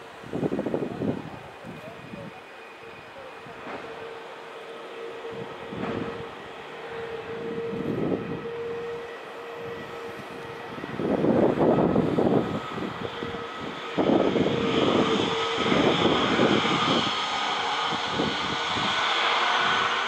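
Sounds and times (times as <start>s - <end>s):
jet engine rushing noise: 0.0s - 20.0s
jet engines whining: 0.0s - 20.0s.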